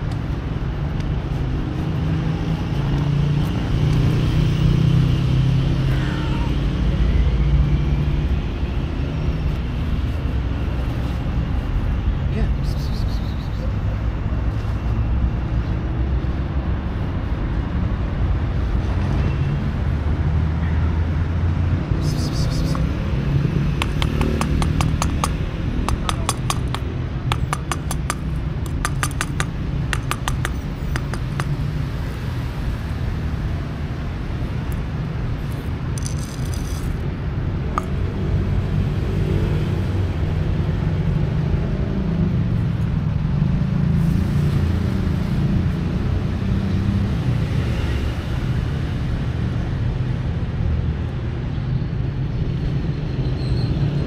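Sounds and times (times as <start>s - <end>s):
street traffic rumble: 0.0s - 54.0s
dry cat food clicking on paving: 23.8s - 31.8s, 37.6s - 38.1s.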